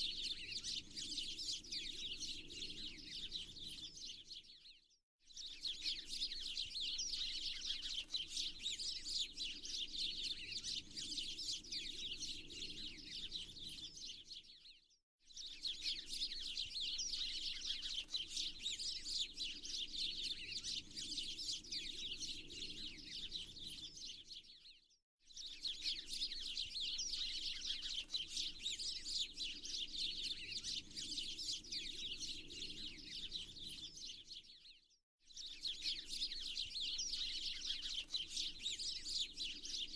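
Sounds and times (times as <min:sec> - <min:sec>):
songbirds chirping: 0:00.1 - 0:04.5, 0:15.4 - 0:24.5, 0:25.4 - 0:34.6.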